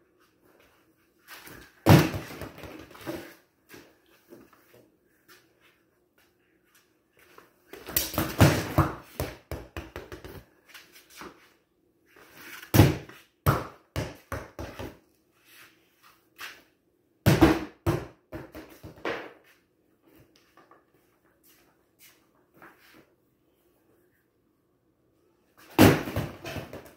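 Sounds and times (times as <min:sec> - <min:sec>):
plastic ball bouncing on concrete: 0:07.7 - 0:10.5, 0:12.8 - 0:15.0.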